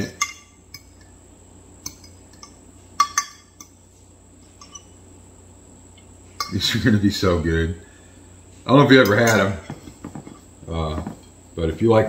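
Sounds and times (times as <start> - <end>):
metal forks clinking on glass: 1.8 - 3.8.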